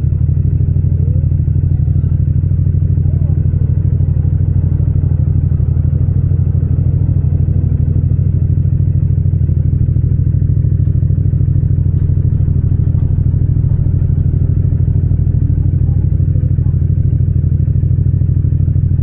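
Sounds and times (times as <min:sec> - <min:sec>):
motorcycle engine idling: 0:00.0 - 0:19.0.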